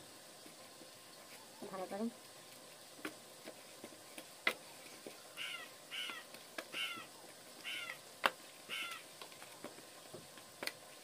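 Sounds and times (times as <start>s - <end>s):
crow cawing: 5.4s - 8.0s, 8.7s - 9.0s.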